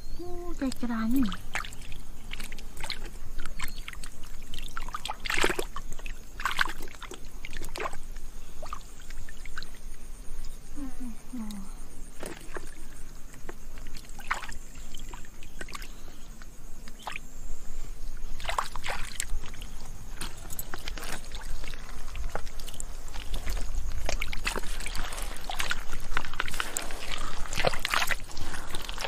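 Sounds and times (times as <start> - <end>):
hands splashing in muddy water: 1.2 - 8.0, 12.2 - 16.0, 16.9 - 17.2, 18.4 - 29.0.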